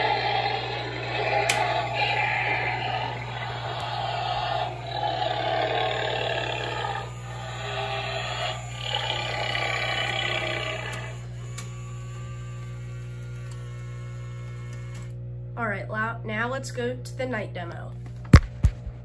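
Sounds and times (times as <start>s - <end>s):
monster sound effect from speaker: 0.0s - 11.2s
steady hum: 0.0s - 19.0s
click: 10.9s - 11.8s, 13.4s - 13.7s.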